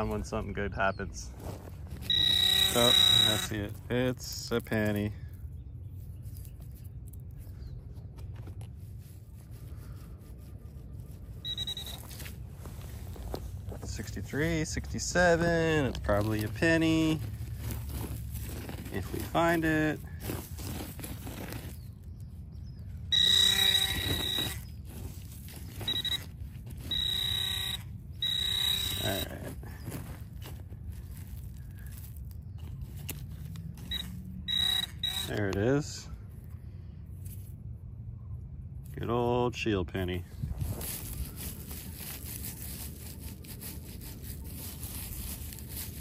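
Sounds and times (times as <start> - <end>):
metal detector coil scraping mulch: 0.0 - 5.2, 8.5 - 36.2, 38.9 - 46.0
metal detector buzzing alert: 2.0 - 3.7, 11.4 - 12.3, 23.1 - 24.7, 25.8 - 29.5, 33.8 - 35.8.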